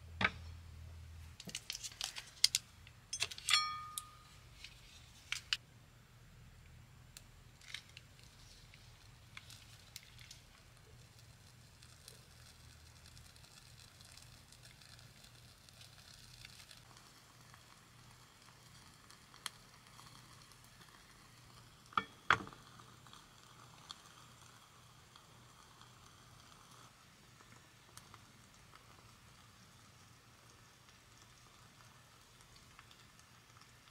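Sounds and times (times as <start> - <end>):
solid fuel sizzling and crackling: 7.2 - 33.9.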